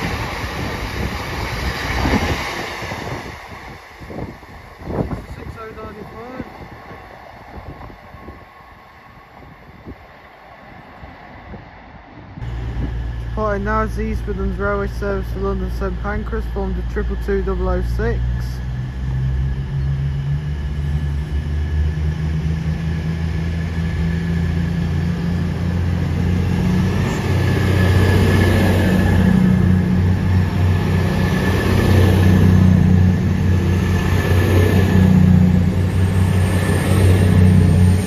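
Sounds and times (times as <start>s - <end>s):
train diesel engines running: 0.0s - 38.0s
thin steady whine: 12.4s - 21.6s.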